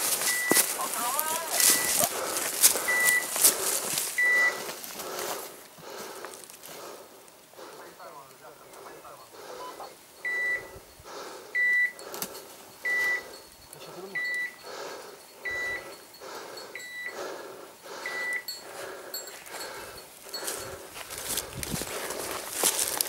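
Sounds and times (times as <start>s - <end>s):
footsteps through dry leaves: 0.0s - 5.6s, 20.2s - 23.0s
dog collar beeping: 0.3s - 0.7s, 1.3s - 2.0s, 2.8s - 3.3s, 4.2s - 4.6s, 9.2s - 11.0s, 11.6s - 17.2s, 18.0s - 20.8s.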